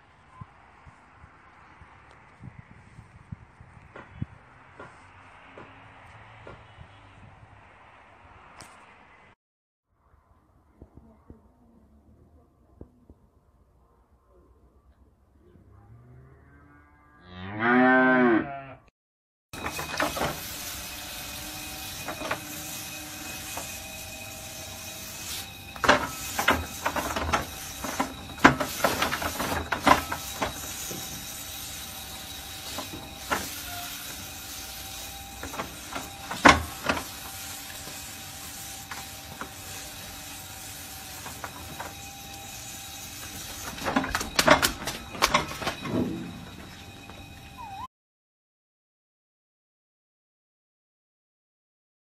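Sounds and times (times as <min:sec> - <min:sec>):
sharp knocks and rustles: 0:03.9 - 0:06.8, 0:25.3 - 0:31.5
electric brush humming: 0:19.6 - 0:45.7.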